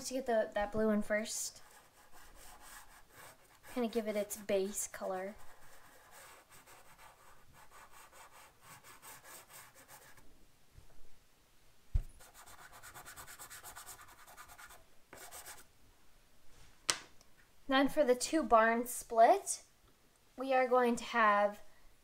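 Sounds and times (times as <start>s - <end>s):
pastel scratching over paper: 1.5s - 4.4s, 5.3s - 10.2s, 12.1s - 15.7s.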